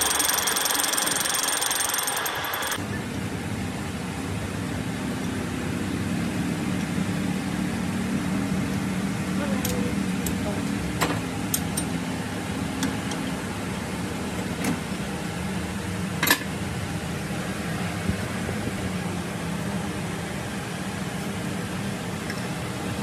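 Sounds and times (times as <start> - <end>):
lathe machine hum: 0.0 - 2.8.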